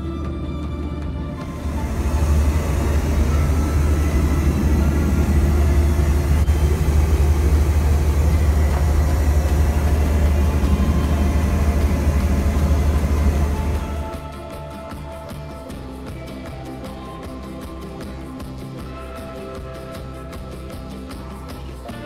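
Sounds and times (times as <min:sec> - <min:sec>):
airplane cabin engine rumble: 0:00.0 - 0:14.3.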